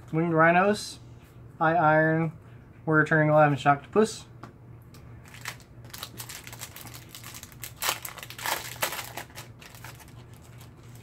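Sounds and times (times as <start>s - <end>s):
foil wrapper crinkling and tearing: 5.2s - 11.0s.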